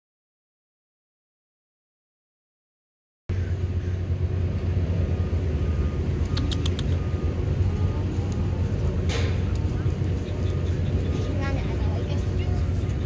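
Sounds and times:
low background rumble: 0:03.3 - 0:13.0
sharp clicks: 0:06.2 - 0:07.0.

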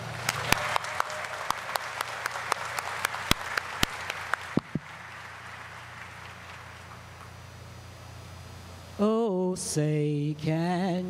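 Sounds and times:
audience applauding: 0:00.0 - 0:07.3
low steady hum: 0:00.0 - 0:11.0.

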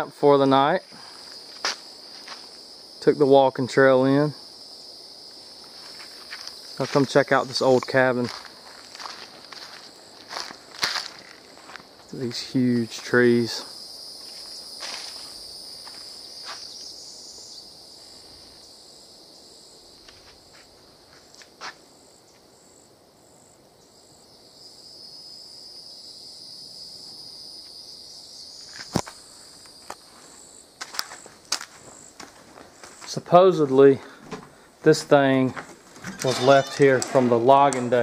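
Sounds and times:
pulsing insect trill: 0:00.0 - 0:21.3, 0:21.9 - 0:33.4, 0:36.0 - 0:38.0
high-pitched insect chorus: 0:00.0 - 0:38.0
footsteps: 0:00.8 - 0:02.6, 0:05.6 - 0:16.7, 0:20.0 - 0:21.8, 0:28.6 - 0:38.0.

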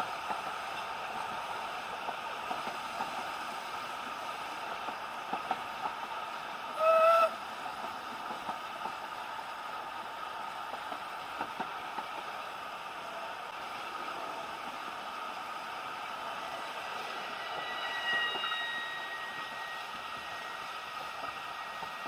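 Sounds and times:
moving train running noise: 0:00.0 - 0:22.0
steam locomotive whistle: 0:06.7 - 0:07.4, 0:16.0 - 0:22.0.

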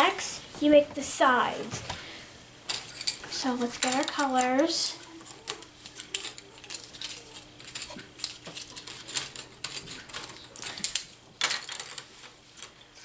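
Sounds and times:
faint steady hum: 0:00.0 - 0:13.0
wooden sticks clattering: 0:02.7 - 0:13.0.

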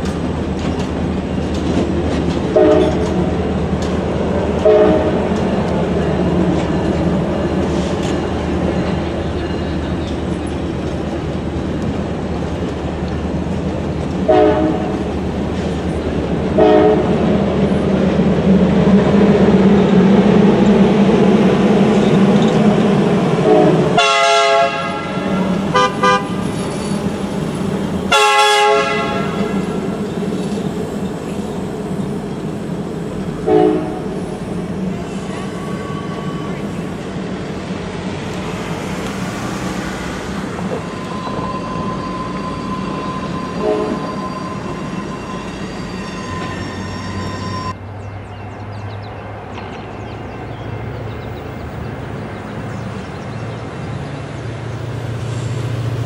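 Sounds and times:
train cars rolling over rails: 0:00.0 - 0:47.8
train horn blasts: 0:02.5 - 0:03.3, 0:04.6 - 0:05.3, 0:14.3 - 0:15.0, 0:16.5 - 0:17.2, 0:23.4 - 0:26.5, 0:28.1 - 0:29.8, 0:33.4 - 0:34.1, 0:41.1 - 0:47.7.

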